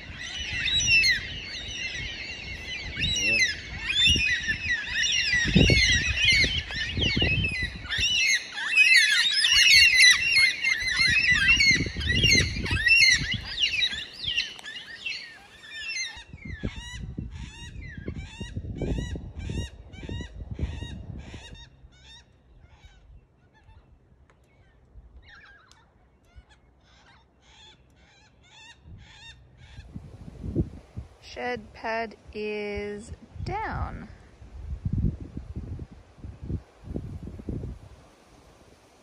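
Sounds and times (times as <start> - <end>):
cockatoos calling: 0.0 - 18.0.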